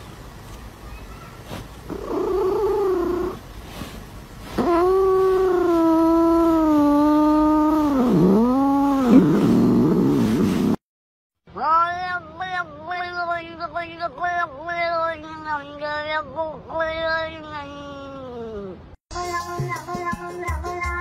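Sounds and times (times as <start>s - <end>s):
cat yowling: 1.0s - 3.4s, 4.6s - 10.2s.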